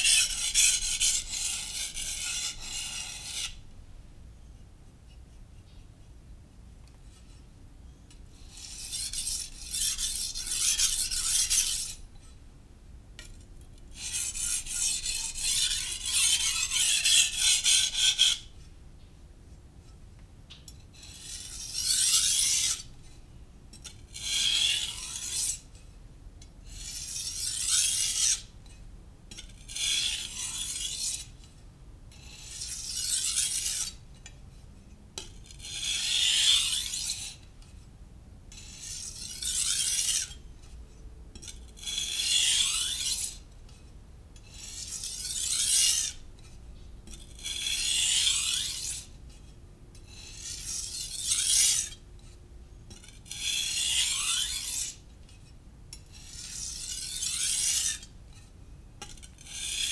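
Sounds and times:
knife sharpening on whetstone: 0:00.0 - 0:03.6, 0:08.3 - 0:12.0, 0:14.0 - 0:18.6, 0:21.0 - 0:22.9, 0:23.8 - 0:25.7, 0:26.6 - 0:31.5, 0:32.1 - 0:34.4, 0:35.2 - 0:37.8, 0:38.5 - 0:40.8, 0:41.4 - 0:59.9.

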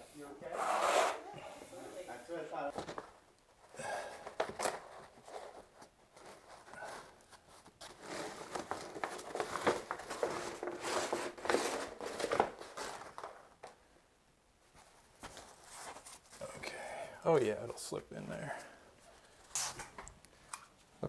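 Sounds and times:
membrane rustling and crinkling: 0:02.7 - 0:13.9, 0:14.6 - 0:16.6.

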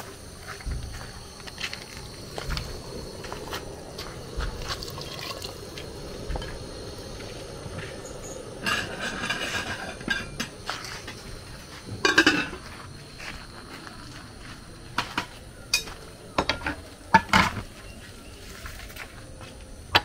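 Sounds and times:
soft liquid sounds: 0:02.4 - 0:07.4.

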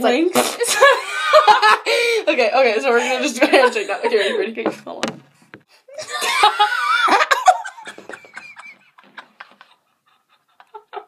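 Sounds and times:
laughter and giggling: 0:00.6 - 0:02.1, 0:05.9 - 0:11.0.

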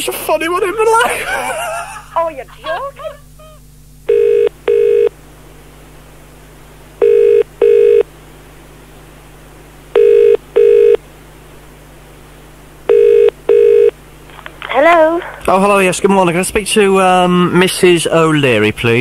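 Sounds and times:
telephone ringing tone: 0:04.1 - 0:05.1, 0:07.0 - 0:08.1, 0:10.0 - 0:11.0, 0:12.9 - 0:13.9.

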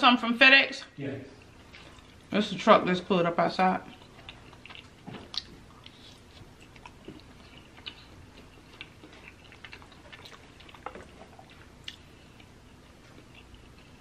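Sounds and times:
wet chewing: 0:01.4 - 0:02.3, 0:03.7 - 0:14.0.

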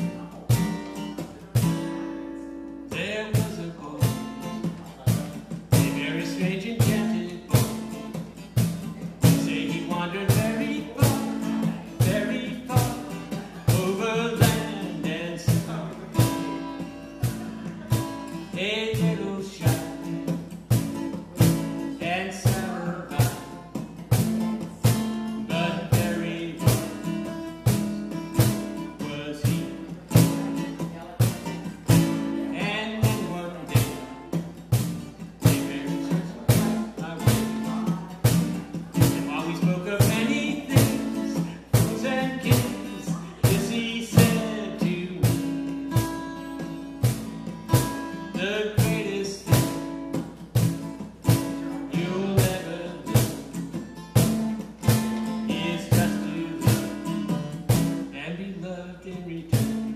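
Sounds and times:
acoustic guitar strumming: 0:00.0 - 0:59.9
man singing: 0:00.0 - 0:59.9.

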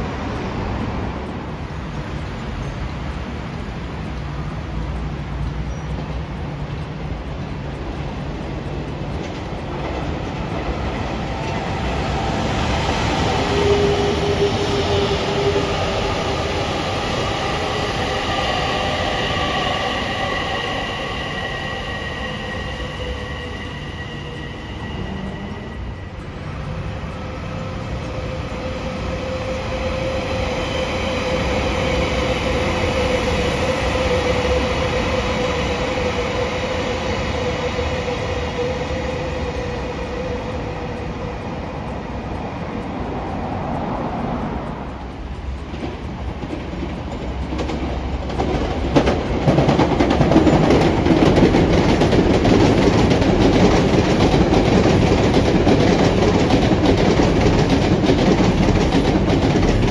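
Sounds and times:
train whine: 0:00.0 - 0:59.9
wheels clacking over rail joints: 0:42.3 - 0:59.9.

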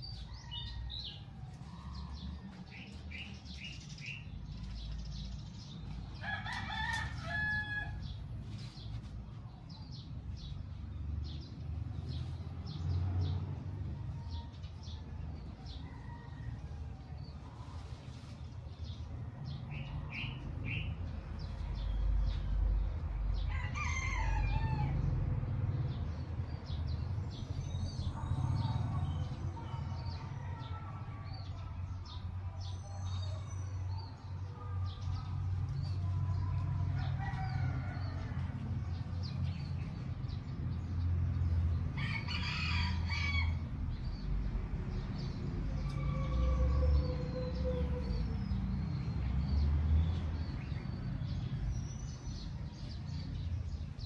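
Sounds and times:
rooster crowing: 0:06.2 - 0:08.1, 0:23.4 - 0:25.1, 0:36.9 - 0:39.0, 0:42.0 - 0:43.6, 0:45.7 - 0:48.4.

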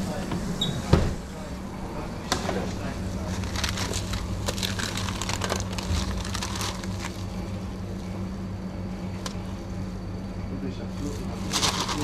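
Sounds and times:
steady low hum: 0:00.0 - 0:12.0
paper and plastic gloves rustling: 0:02.6 - 0:08.0, 0:11.0 - 0:12.0.

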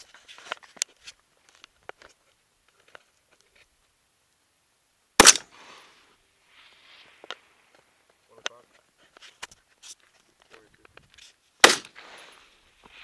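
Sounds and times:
rifle shot with echo: 0:05.2 - 0:05.5, 0:11.6 - 0:12.2.

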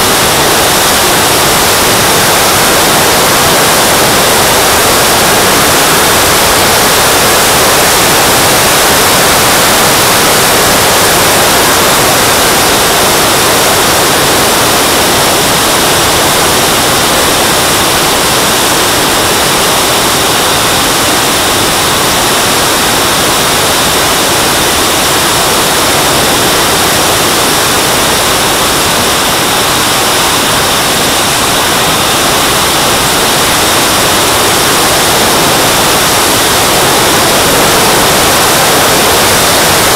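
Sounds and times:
jet turbine hissing: 0:00.0 - 0:39.9.

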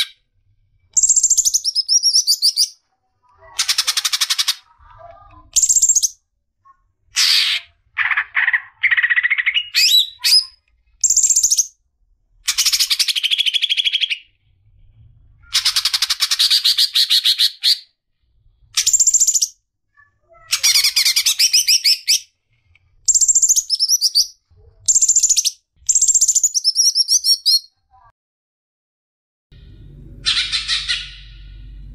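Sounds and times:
bird singing trills and whistles: 0:01.0 - 0:02.8, 0:08.8 - 0:11.7, 0:18.8 - 0:19.6, 0:23.1 - 0:27.7.

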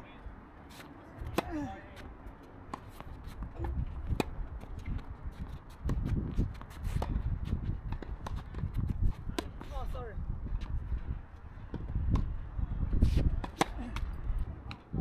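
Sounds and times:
racket hitting tennis ball: 0:00.7 - 0:09.9, 0:13.0 - 0:14.9.

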